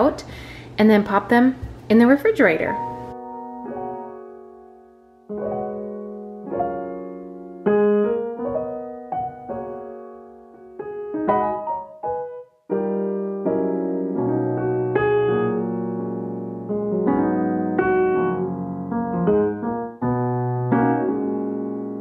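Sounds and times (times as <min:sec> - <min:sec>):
slow piano music: 0:02.7 - 0:22.0.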